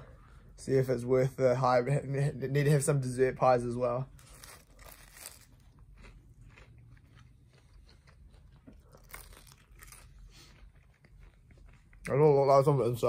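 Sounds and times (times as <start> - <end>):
pie crust crunching: 4.1 - 12.6.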